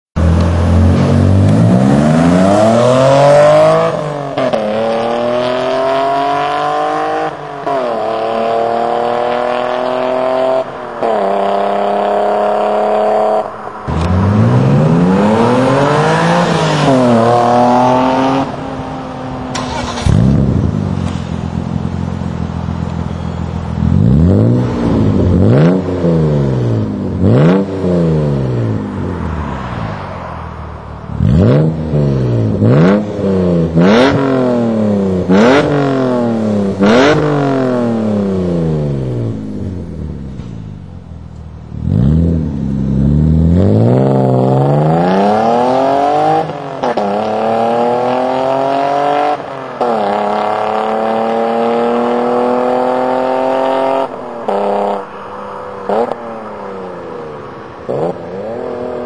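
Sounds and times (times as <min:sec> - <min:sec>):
car engine accelerating: 0:00.1 - 0:59.0
car engine idling: 0:18.5 - 0:24.2.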